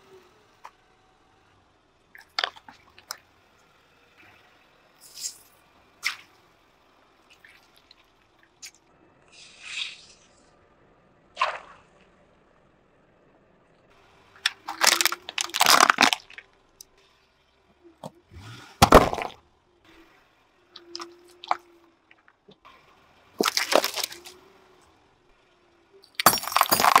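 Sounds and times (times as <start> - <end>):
objects crunching under car tyre: 14.4 - 16.5, 18.8 - 19.4, 23.4 - 24.4, 26.2 - 27.0
clay pot breaking: 18.8 - 19.4, 26.2 - 27.0.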